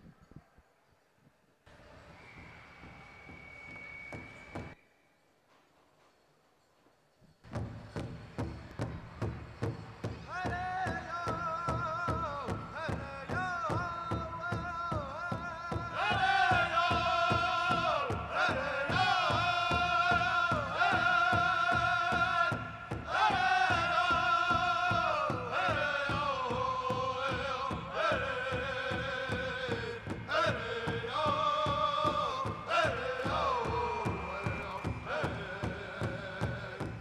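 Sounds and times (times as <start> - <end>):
large drum steady beat: 7.5 - 37.0
group singing high held notes: 15.3 - 37.0.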